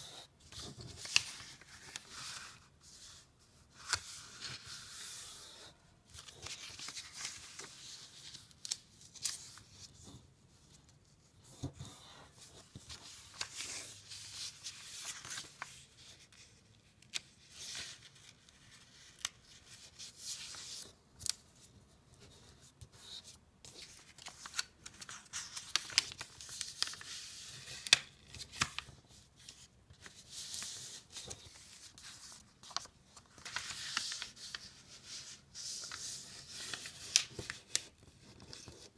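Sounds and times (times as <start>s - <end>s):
paper rustling and sliding: 0.0s - 10.3s, 22.8s - 38.9s
taps and clicks of paper folds: 24.2s - 29.0s.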